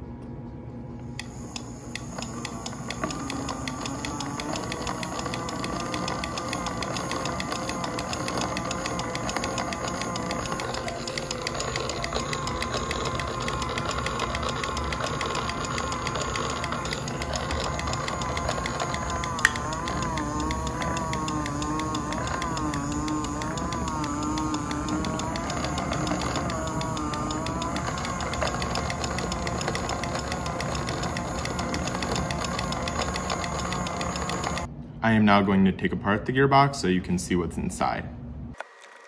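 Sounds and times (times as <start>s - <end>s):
small motor whine: 1.1s - 34.7s.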